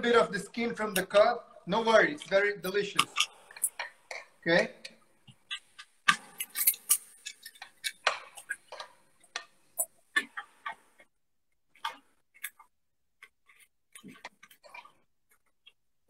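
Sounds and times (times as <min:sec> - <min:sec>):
fork clicking and scraping on bowl: 0:03.0 - 0:11.1.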